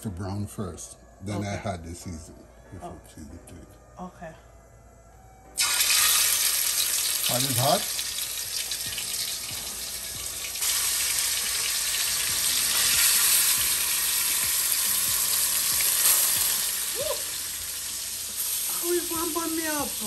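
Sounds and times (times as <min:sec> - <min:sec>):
meat sizzling in hot oil: 0:05.6 - 0:20.0.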